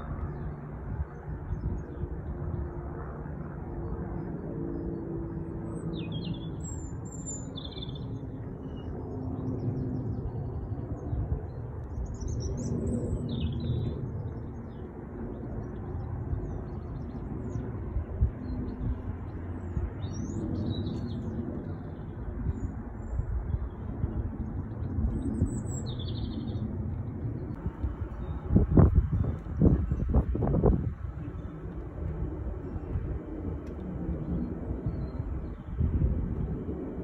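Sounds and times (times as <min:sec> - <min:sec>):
jet airliner passing overhead: 0:00.0 - 0:37.0
small birds chirping: 0:24.7 - 0:26.7.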